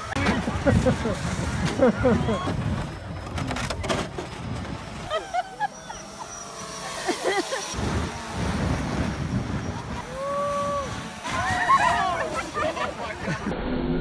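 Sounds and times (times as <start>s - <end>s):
wind rumble on microphone: 7.7s - 12.6s
people shouting and calling: 10.0s - 13.5s.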